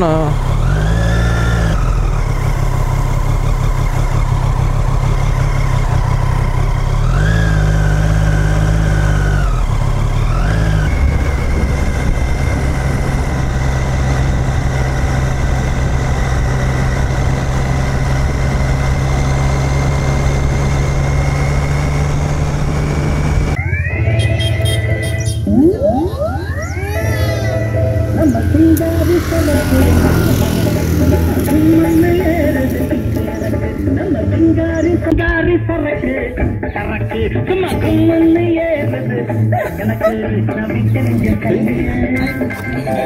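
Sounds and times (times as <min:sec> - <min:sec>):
motorcycle engine: 0:00.0 - 0:43.0.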